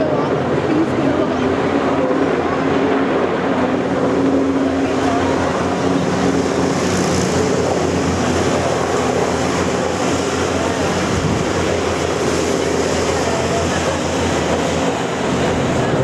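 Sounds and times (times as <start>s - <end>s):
boat outboard engines droning: 0.0s - 16.0s
helicopter: 0.0s - 16.0s.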